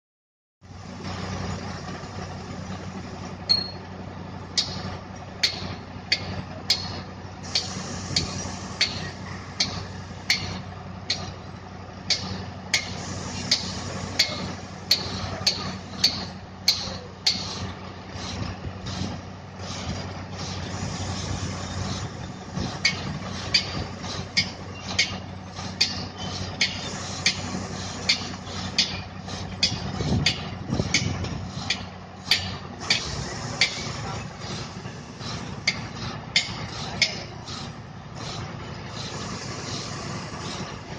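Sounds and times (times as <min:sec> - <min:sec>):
diesel engine running: 0:00.6 - 0:40.9.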